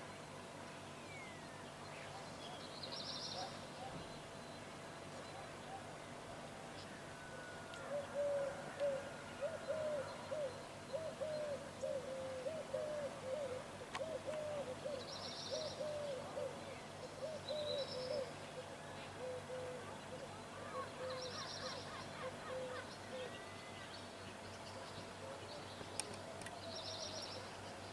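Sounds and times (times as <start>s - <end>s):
small birds twittering: 0.8s - 7.0s, 7.7s - 27.9s
dove cooing: 7.2s - 23.4s.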